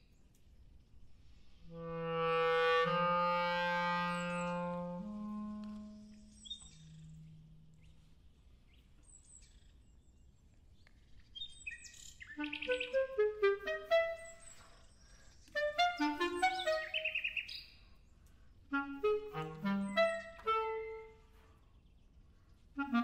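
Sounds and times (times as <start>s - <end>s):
solo clarinet: 1.6s - 7.8s, 12.4s - 14.7s, 15.6s - 17.3s, 18.7s - 21.5s, 22.8s - 23.0s.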